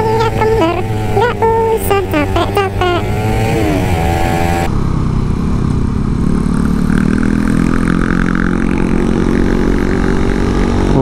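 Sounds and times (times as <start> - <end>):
motorcycle engine running: 0.0 - 11.0
wind rumble: 3.1 - 11.0.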